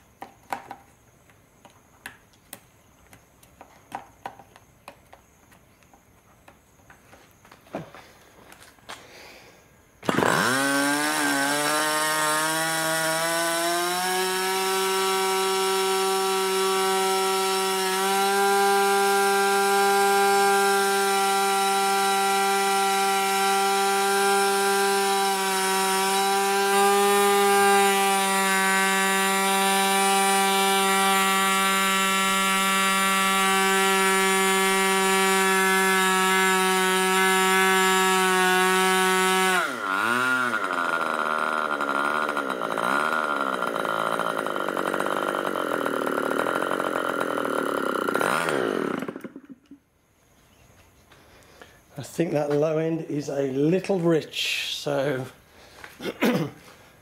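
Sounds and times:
model engine running: 10.0s - 49.8s.

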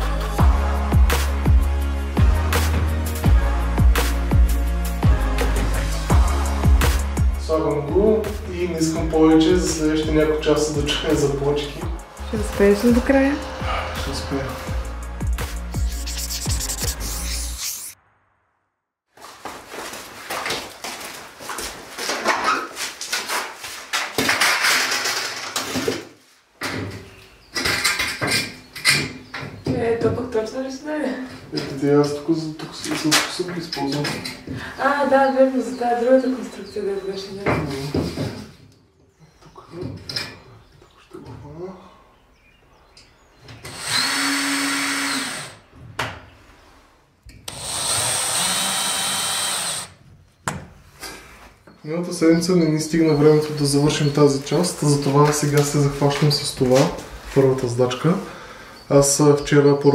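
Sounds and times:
cordless drill running: 43.6s - 45.7s, 47.5s - 50.0s.

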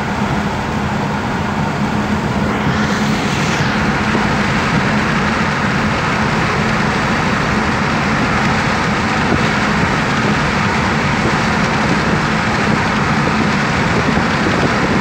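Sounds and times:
low engine drone: 0.0s - 15.0s
tyre and wind rush: 1.6s - 15.0s.

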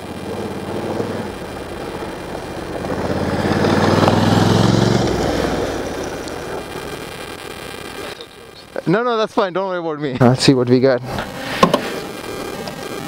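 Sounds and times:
motorcycle riding past on gravel: 0.2s - 6.7s.

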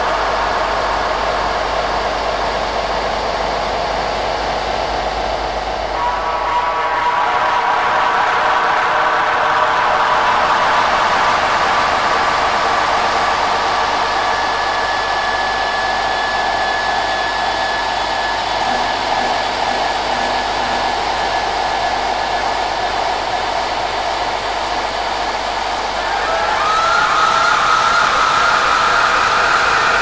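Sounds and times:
synthesized noise drone: 9.9s - 28.9s
faint thin high tone: 18.6s - 22.0s.

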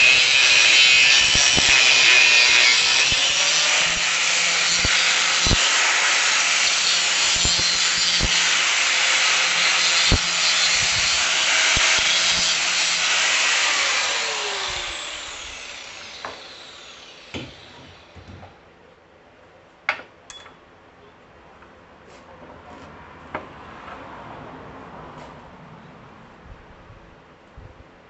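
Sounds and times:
angle grinder cutting steel: 0.0s - 18.1s.

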